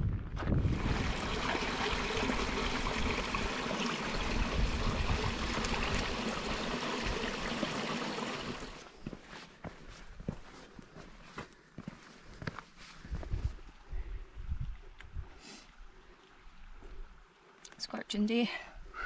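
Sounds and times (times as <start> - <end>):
stream trickling over rocks: 0.6 - 8.9.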